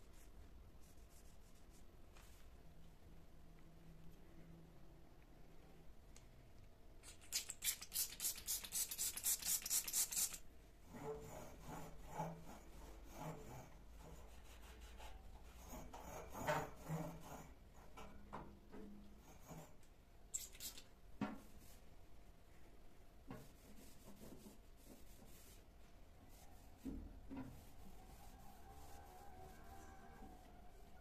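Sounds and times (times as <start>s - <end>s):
spray bottle squirts: 7.0s - 10.4s, 20.3s - 20.9s.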